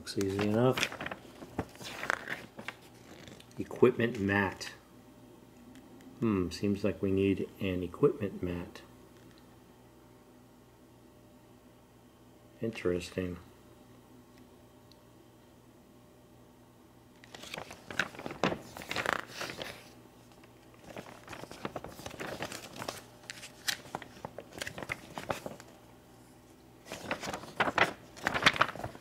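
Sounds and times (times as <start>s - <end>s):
paper pages rustling: 0.1s - 4.3s, 17.2s - 25.8s, 26.8s - 29.0s.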